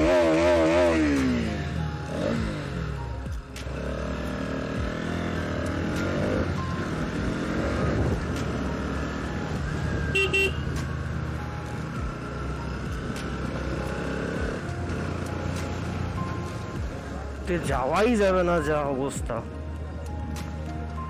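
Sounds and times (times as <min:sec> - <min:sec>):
motorcycle engine running: 0:00.0 - 0:17.8
horn toots: 0:10.0 - 0:10.9.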